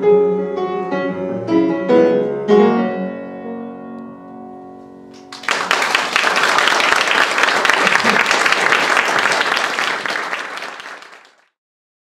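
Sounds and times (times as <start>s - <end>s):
piano playing: 0.0s - 6.4s
audience applauding: 5.2s - 11.5s.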